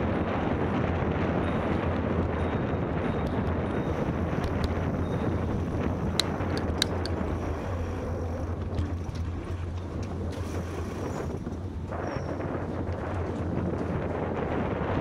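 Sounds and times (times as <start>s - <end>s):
wind buffeting microphone: 0.0s - 15.0s
bicycle tyres rolling: 0.1s - 15.0s
bike clicks: 4.3s - 4.9s, 6.0s - 7.5s.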